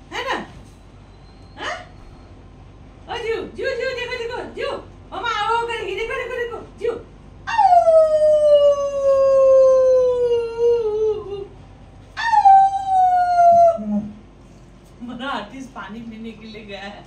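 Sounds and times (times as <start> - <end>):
woman imitating dog howl: 7.5 - 11.5, 12.2 - 14.1.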